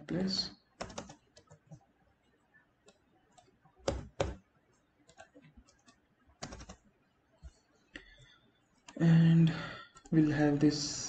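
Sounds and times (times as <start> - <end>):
keyboard keys clicking: 0.8 - 1.8, 5.1 - 6.8.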